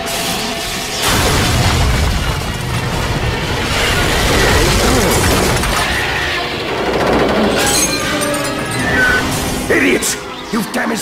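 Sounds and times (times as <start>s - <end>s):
ice cracking and shattering: 1.0s - 6.3s
background music: 4.2s - 11.0s.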